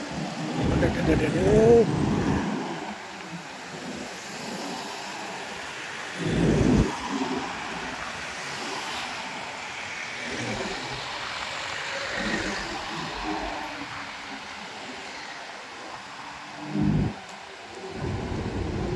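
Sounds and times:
low rumble: 6.2s - 6.9s.

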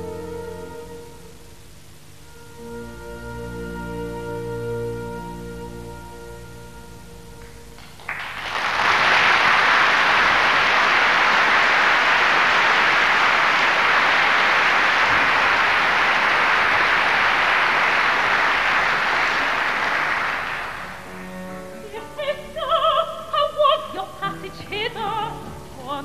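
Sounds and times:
audience applauding: 7.4s - 21.5s.

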